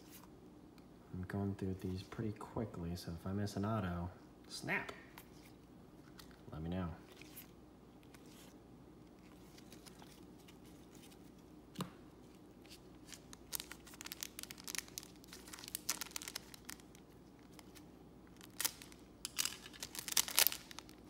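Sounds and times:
wrapper crinkling and tearing: 9.2s - 11.3s, 12.6s - 21.0s
sharp wrapper crack: 13.0s - 21.0s.

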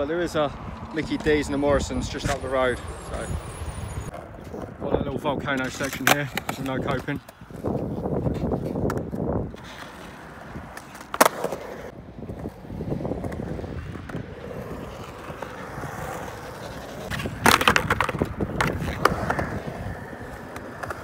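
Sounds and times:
skateboard wheels rolling on concrete: 0.0s - 21.0s
skateboard clacking on concrete: 5.5s - 21.0s.

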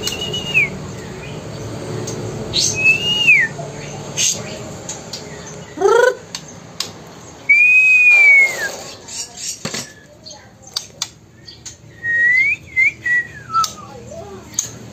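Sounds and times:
person whistling: 7.5s - 8.6s.

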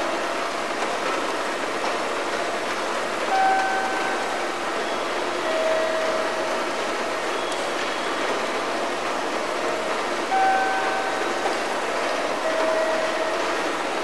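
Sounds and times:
train and platform noise: 0.0s - 14.0s
brief steady tone: 3.3s - 6.4s, 10.3s - 11.3s, 12.4s - 13.4s.

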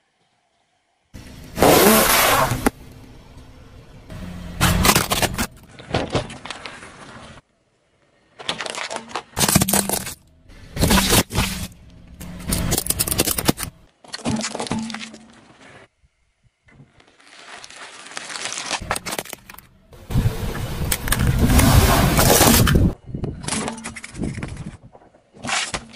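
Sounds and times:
tyre crushing plastic toys: 4.6s - 7.3s, 8.3s - 15.5s, 16.9s - 19.7s.

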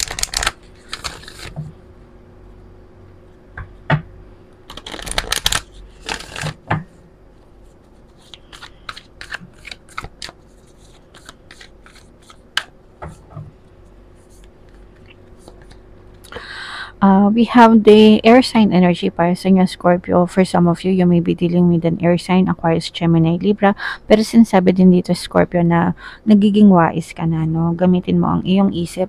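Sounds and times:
cards riffling: 0.0s - 1.7s, 4.7s - 6.7s, 8.0s - 12.7s.

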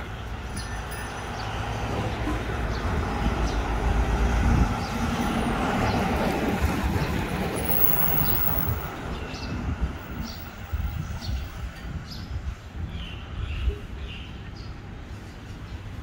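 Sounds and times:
vehicle passing: 1.5s - 10.7s.

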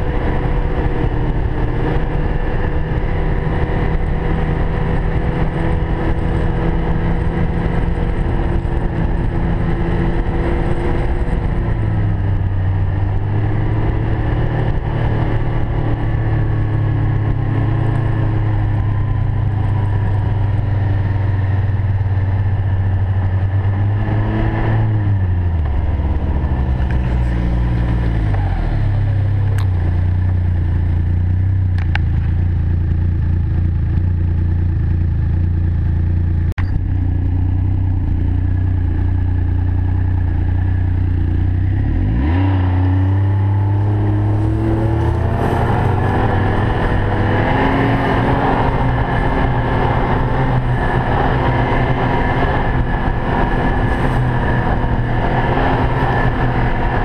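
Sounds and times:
snowmobile engine running: 0.0s - 57.0s.

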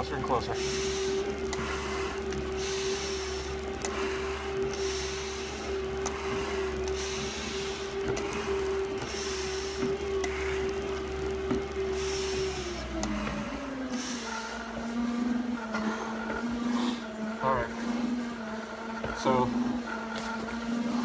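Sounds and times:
stair-climber motor whine: 0.0s - 21.0s
breathing mask hissing: 0.6s - 5.6s.

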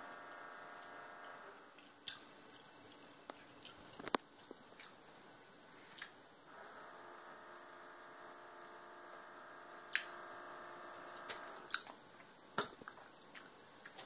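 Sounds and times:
steady hum: 0.0s - 14.0s
mouth chewing candy: 1.7s - 5.0s, 11.2s - 14.0s.

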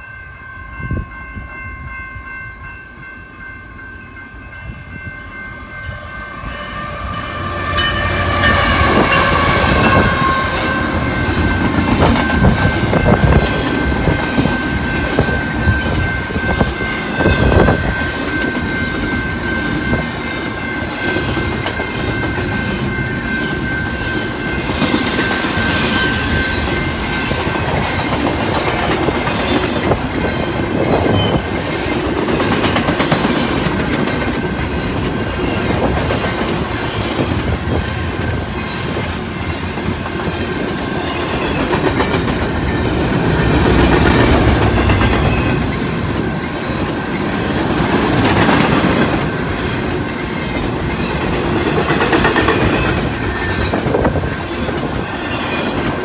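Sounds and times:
train cars rumbling and clattering: 4.4s - 56.0s
locomotive horn: 5.9s - 11.4s.

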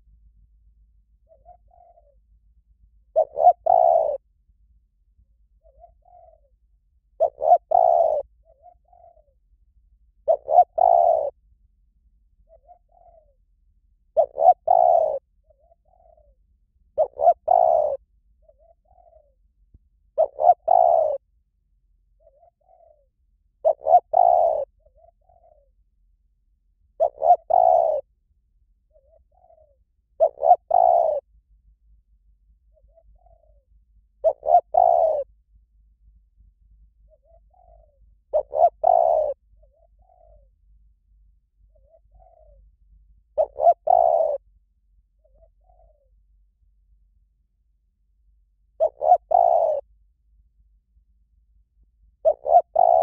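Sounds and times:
dove cooing: 1.2s - 2.4s, 3.0s - 4.3s, 5.5s - 9.5s, 10.2s - 11.4s, 12.4s - 13.4s, 14.1s - 21.3s, 22.2s - 25.8s, 27.0s - 28.1s, 28.9s - 31.4s, 32.6s - 35.4s, 37.0s - 44.6s, 45.2s - 46.2s, 48.6s - 50.0s, 52.1s - 53.0s.

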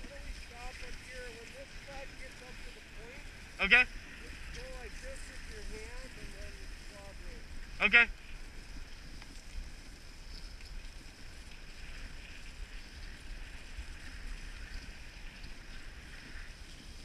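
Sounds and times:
low rumble: 0.0s - 10.1s
sled runners hissing on snow: 0.0s - 17.0s.

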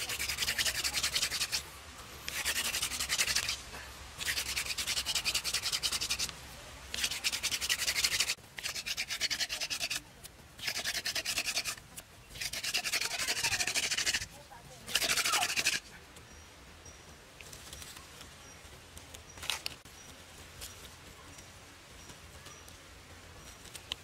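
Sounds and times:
wooden spindle rasping in hearth: 0.0s - 15.9s.

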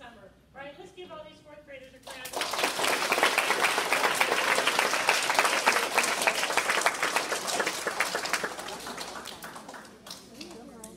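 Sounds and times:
audience applauding: 2.3s - 10.3s.

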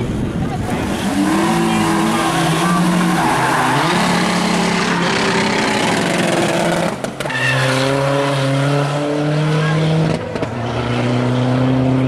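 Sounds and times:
car engine at high revs: 0.4s - 12.0s
tyre squeal: 7.2s - 8.0s.

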